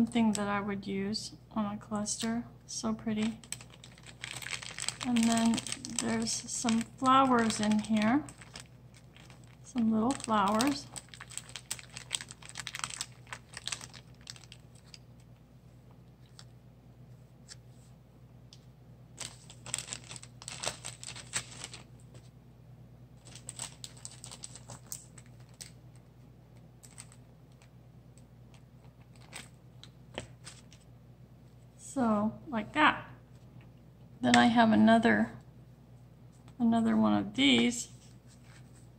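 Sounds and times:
faint low hum: 0:00.0 - 0:38.9
plastic bag crinkling: 0:03.0 - 0:15.0, 0:19.2 - 0:22.2, 0:23.2 - 0:26.0, 0:26.8 - 0:27.7, 0:28.5 - 0:29.6.

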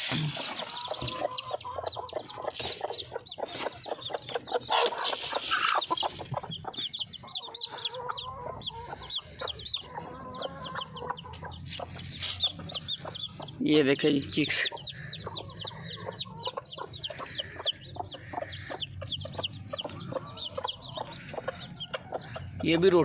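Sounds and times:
chicks peeping: 0:00.0 - 0:23.0
hen clucking: 0:00.0 - 0:23.0
rustling and scuffling: 0:11.7 - 0:12.6.

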